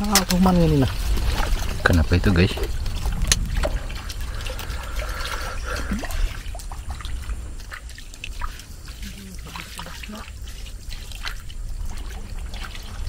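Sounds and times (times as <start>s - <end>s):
steady low rumble: 0.0s - 9.7s
water trickling and dripping: 0.0s - 13.0s.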